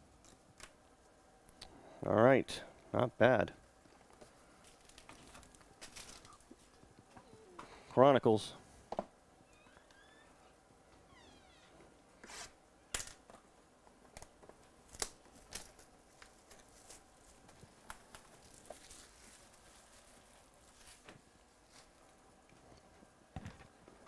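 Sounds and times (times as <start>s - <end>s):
plastic wrap crinkling: 4.0s - 6.9s, 14.2s - 22.1s
plastic wrap ripping: 4.6s - 6.6s, 14.7s - 21.1s.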